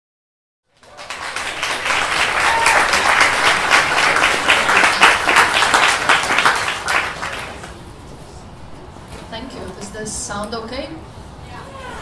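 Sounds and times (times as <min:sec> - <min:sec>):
audience applauding: 0:00.7 - 0:07.8.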